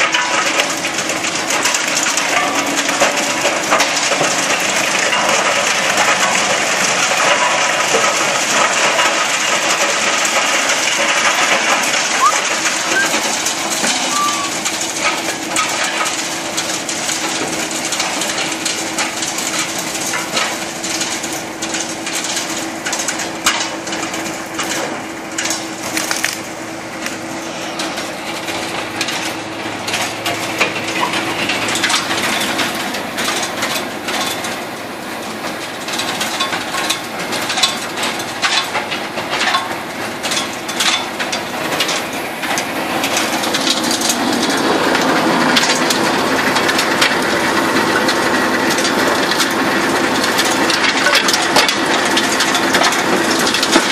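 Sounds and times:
steady machine hum: 0.0 - 20.2, 23.9 - 53.9
wood chipper crunching branches: 0.0 - 53.9
wood cracking and snapping: 25.5 - 27.2.

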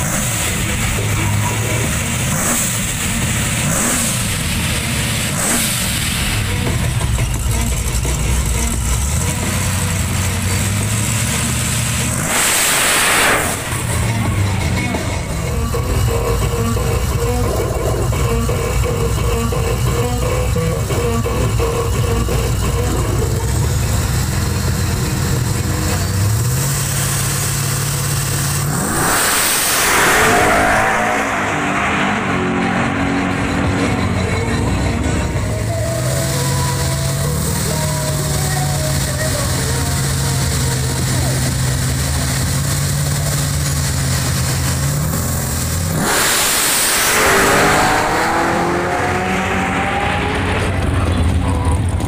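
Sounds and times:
truck accelerating at full throttle: 0.0 - 52.0
truck engine rumbling: 0.0 - 52.0.

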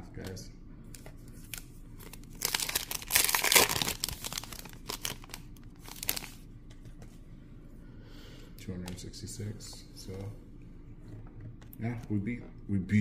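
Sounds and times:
foil wrapper tearing and crinkling: 2.0 - 6.4.

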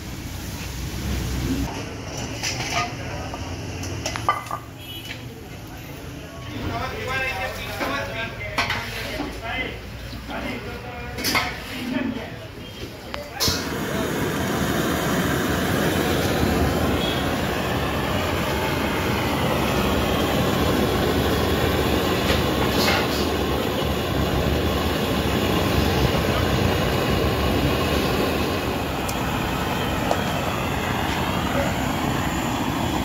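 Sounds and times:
gas burner rushing: 0.0 - 4.6, 12.8 - 33.0.

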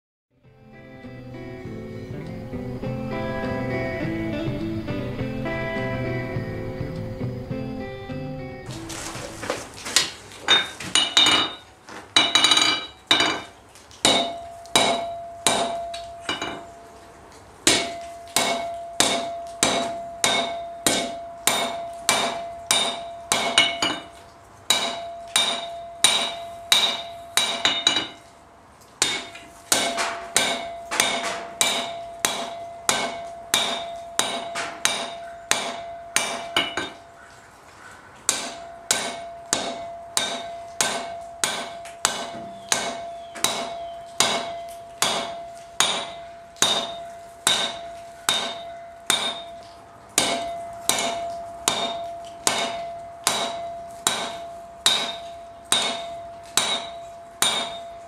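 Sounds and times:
anvil ringing: 12.2 - 13.5, 14.1 - 16.7, 17.7 - 24.1, 24.7 - 28.2, 29.0 - 37.0, 38.3 - 49.6, 50.2 - 58.0
hammer striking hot metal on anvil: 12.2 - 13.5, 14.1 - 16.6, 17.7 - 24.1, 24.7 - 28.2, 29.0 - 37.0, 38.3 - 49.6, 50.2 - 58.0.

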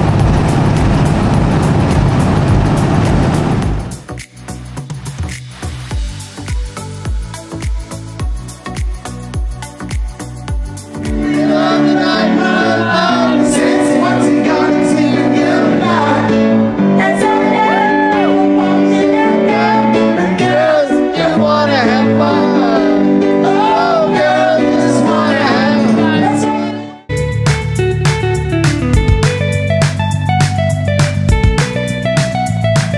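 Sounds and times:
woman singing with vibrato: 11.4 - 27.0
instrumental accompaniment: 18.3 - 32.9.

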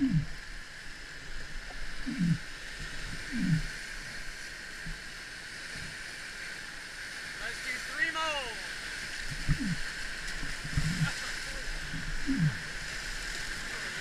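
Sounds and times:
whitewater rapids rushing: 6.6 - 14.0.

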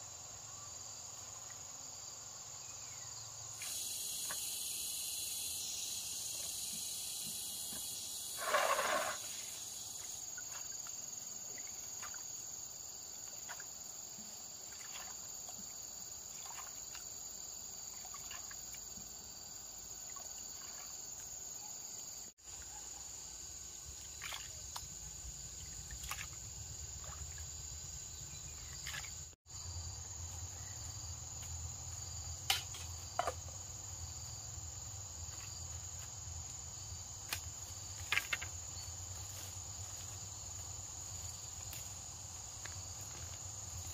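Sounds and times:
high-pitched insect drone: 3.6 - 11.2.

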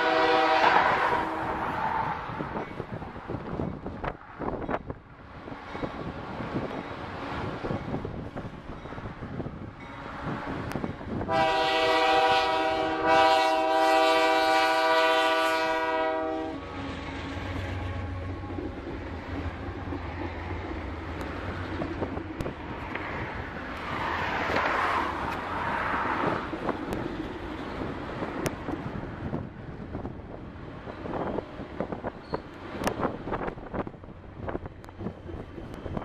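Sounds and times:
locomotive horn blast: 0.0 - 2.2, 11.2 - 18.7
locomotive engine droning: 0.0 - 36.0.

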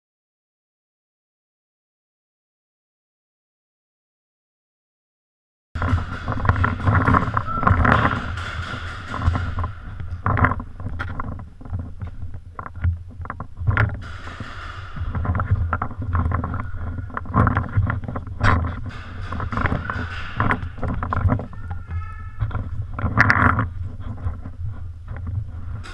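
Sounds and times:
knocks and clicks: 5.8 - 25.9
rumbling handling noise: 5.8 - 25.9.

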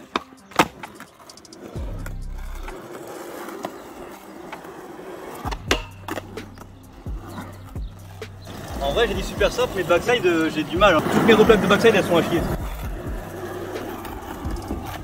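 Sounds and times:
skateboard clacking: 0.0 - 15.0
skateboard wheels rolling on asphalt: 0.0 - 15.0
skateboard hitting metal rail: 5.5 - 6.2.

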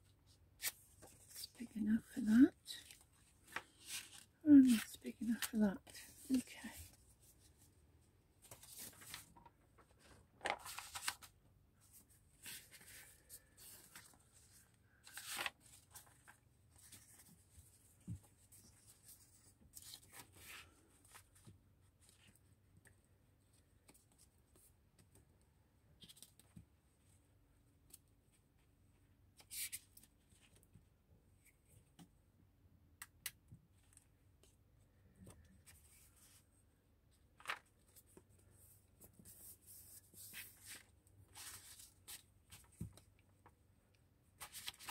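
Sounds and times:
paper rustling and tapping: 8.4 - 11.3, 37.4 - 38.1, 41.4 - 43.5.

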